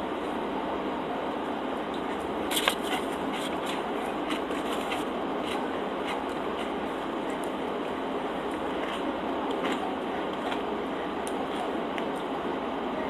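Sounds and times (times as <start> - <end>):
steady background hiss: 0.0 - 13.0
crunchy chewing: 2.5 - 7.6, 8.5 - 10.7.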